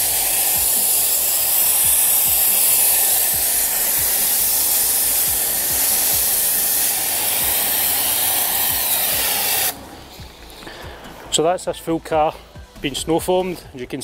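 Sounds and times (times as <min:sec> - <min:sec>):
pressure washer spraying foam: 0:00.0 - 0:10.8.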